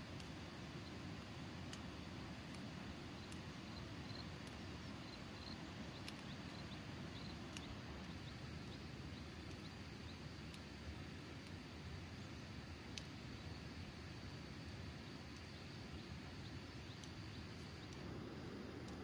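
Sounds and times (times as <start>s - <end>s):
steady low hiss: 0.0s - 19.0s
light clicks: 0.2s - 0.4s, 1.7s - 3.5s, 6.0s - 8.8s, 12.9s - 13.2s, 16.9s - 18.1s.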